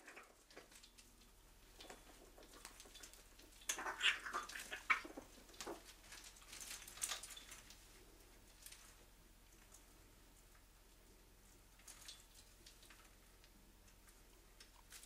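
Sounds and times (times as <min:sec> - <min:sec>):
parrot climbing taps and rustles: 0:00.4 - 0:07.8.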